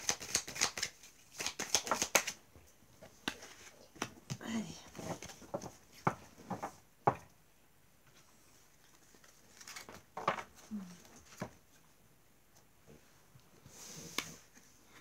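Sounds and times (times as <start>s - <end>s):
cards tapping and rustling: 0.0s - 2.4s, 3.0s - 7.2s, 9.1s - 10.6s.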